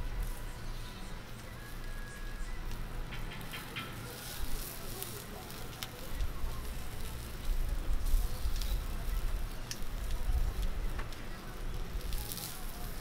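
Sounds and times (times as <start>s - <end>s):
skewers sizzling on a grill: 0.0s - 13.0s
sharp ticks and pops: 9.6s - 11.2s.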